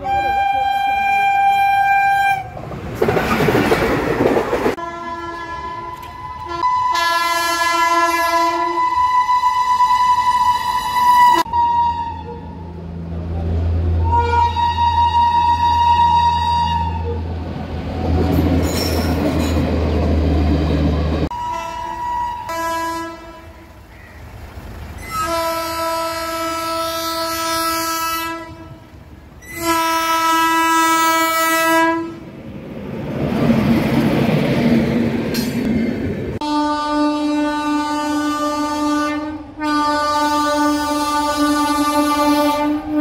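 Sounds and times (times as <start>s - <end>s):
locomotive horn blasts: 0.0s - 2.5s, 4.8s - 12.8s, 14.0s - 17.3s, 21.3s - 23.8s, 25.0s - 32.2s, 36.4s - 43.0s
train wheels clattering: 18.2s - 20.0s.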